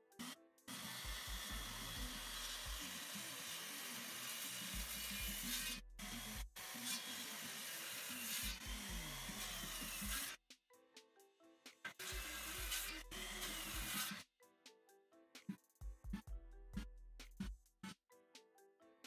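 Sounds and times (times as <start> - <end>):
circular saw cutting wood: 0.2 - 10.4, 11.9 - 14.2.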